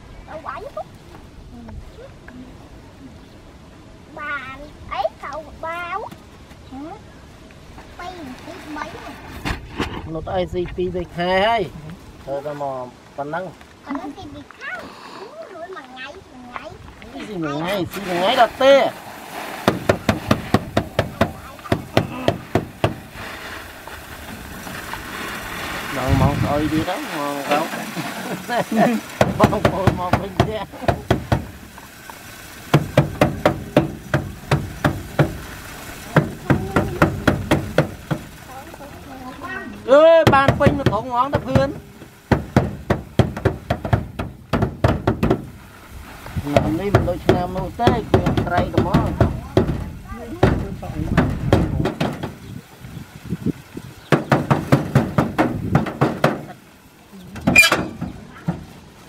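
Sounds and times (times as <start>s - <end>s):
sack thumping against metal: 17.9s - 23.4s, 25.9s - 31.7s, 32.7s - 38.3s, 40.1s - 45.6s, 46.4s - 52.4s, 54.1s - 56.6s, 57.4s - 58.8s
sharp knocks: 19.6s - 23.1s, 29.2s - 31.6s, 32.7s - 35.5s, 36.1s - 38.3s, 40.2s - 45.6s, 46.5s - 52.4s, 54.1s - 56.6s.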